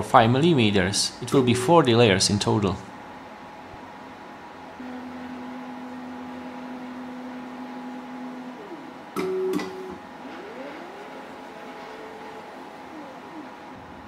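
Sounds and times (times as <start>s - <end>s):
stepper motors whining: 4.8s - 14.0s.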